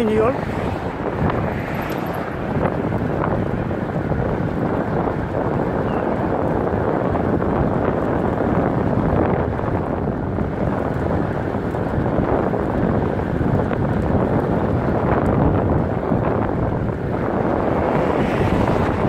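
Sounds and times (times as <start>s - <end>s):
moving vehicle rumble: 0.0s - 19.0s
wind noise: 0.0s - 19.0s.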